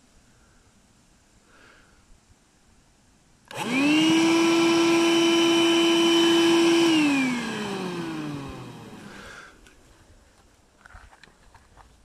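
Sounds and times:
cordless vacuum whine: 3.5s - 9.6s.

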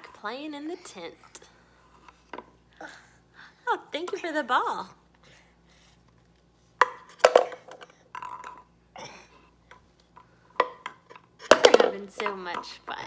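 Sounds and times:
ball clattering in wooden toy: 6.8s - 8.6s, 10.6s - 12.9s.

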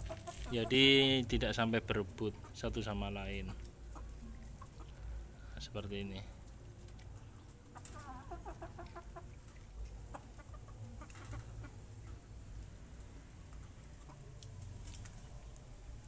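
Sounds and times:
chickens clucking: 0.0s - 1.2s, 2.0s - 5.3s, 6.1s - 12.3s, 13.1s - 14.4s.

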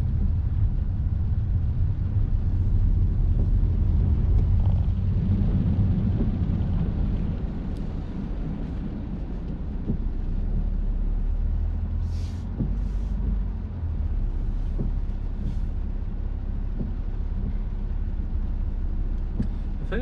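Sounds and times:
diesel engine and tyre drone: 0.0s - 20.0s
short hisses: 12.0s - 13.2s.

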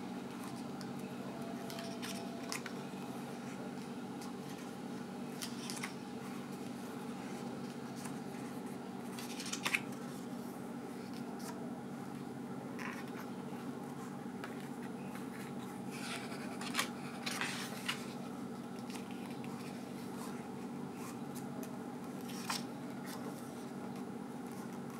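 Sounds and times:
steady low hum: 0.0s - 24.9s
book pages turning: 3.4s - 10.3s, 11.0s - 11.6s, 12.8s - 24.9s.

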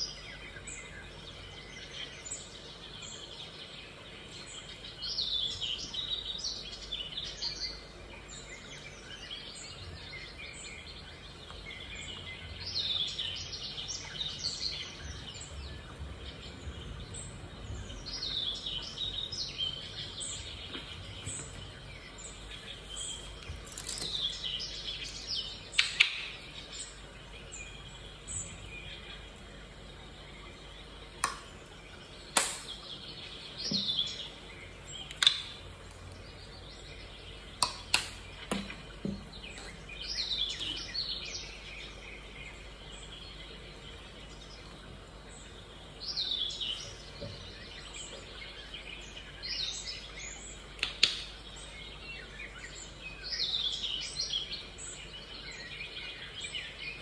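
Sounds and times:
birds chirping and trilling: 0.0s - 57.0s
low background noise: 0.0s - 57.0s
sharp click: 32.4s - 32.8s, 35.1s - 35.6s, 37.6s - 38.7s.

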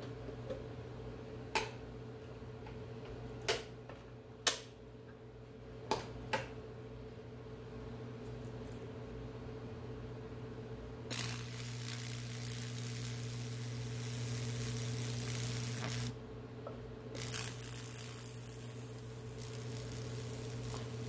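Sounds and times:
electrical hum: 0.0s - 21.0s
electrical arc crackling: 11.1s - 16.2s, 17.2s - 21.0s.

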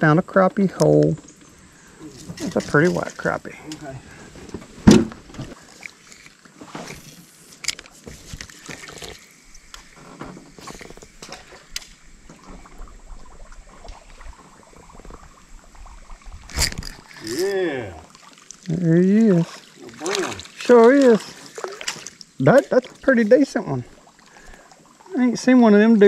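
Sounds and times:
faint water sounds: 0.0s - 26.0s
handling knocks in boat: 4.5s - 5.6s.

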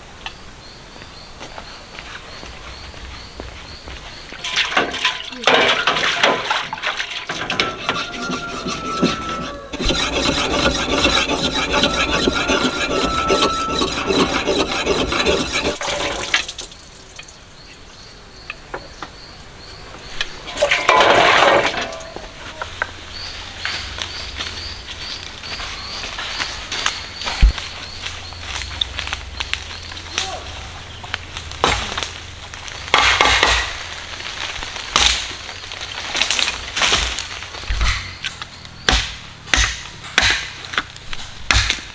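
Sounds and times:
tool scraping metal basin: 4.4s - 16.7s, 20.5s - 22.2s.

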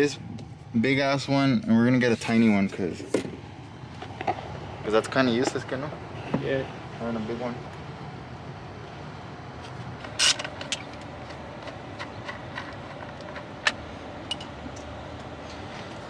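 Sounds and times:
low background hum: 0.0s - 16.0s
metal clinks: 14.2s - 14.6s.

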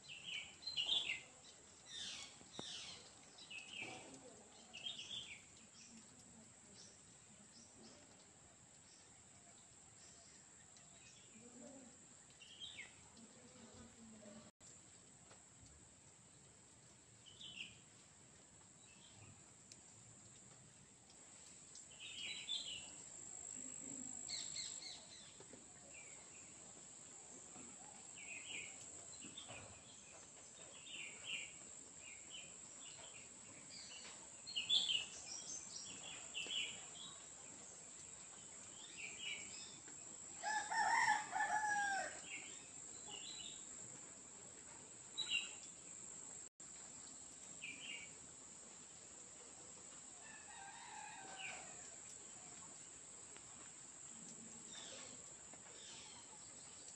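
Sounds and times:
rooster crowing: 40.4s - 42.2s, 50.2s - 51.9s.

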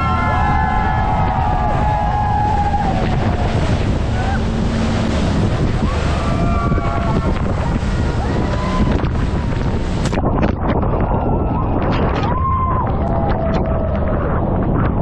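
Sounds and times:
waterfall rushing: 0.0s - 10.2s
speedboat: 0.0s - 15.0s
wind buffeting microphone: 0.0s - 15.0s.

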